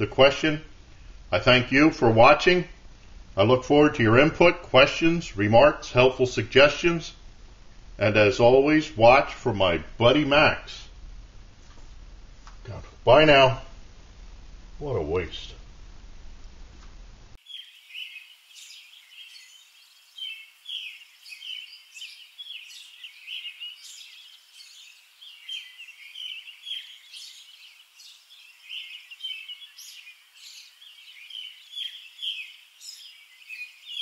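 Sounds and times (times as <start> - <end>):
songbirds chirping: 0.0 - 11.6, 12.2 - 16.0, 17.2 - 34.0.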